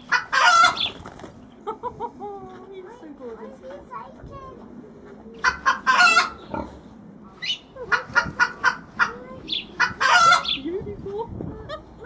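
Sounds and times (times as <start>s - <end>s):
chickens clucking and squawking: 0.0s - 2.8s, 4.6s - 10.9s, 11.5s - 12.0s.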